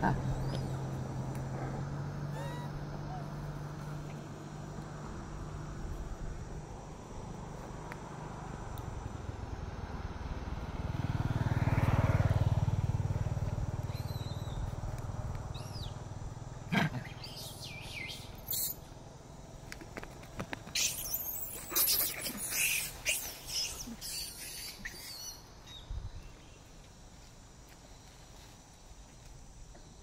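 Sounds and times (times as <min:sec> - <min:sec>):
vehicle passing by: 0:00.0 - 0:19.6.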